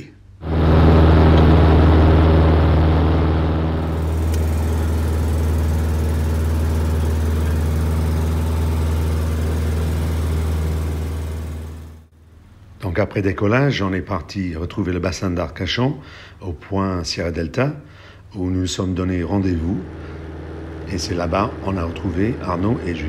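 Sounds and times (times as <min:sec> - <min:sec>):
light aircraft engine drone: 0:00.5 - 0:12.0.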